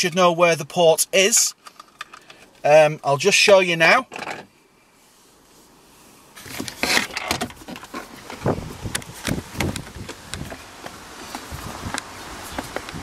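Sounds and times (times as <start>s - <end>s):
camera handling rustling: 1.6s - 2.6s.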